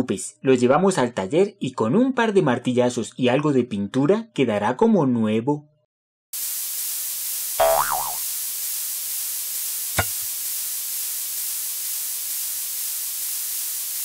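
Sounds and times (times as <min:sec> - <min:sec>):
steady hiss: 0:06.4 - 0:14.0
warbling tone: 0:07.6 - 0:08.2.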